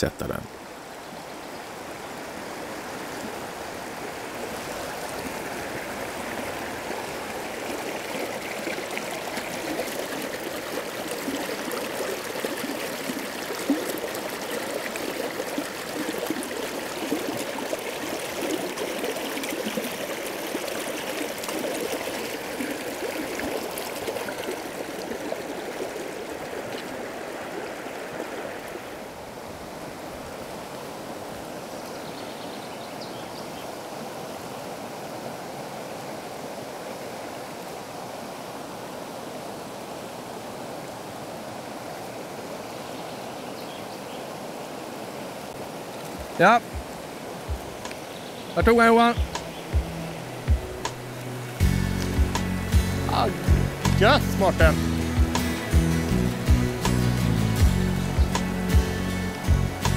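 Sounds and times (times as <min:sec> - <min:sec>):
water rushing over rocks: 0:00.0 - 0:59.9.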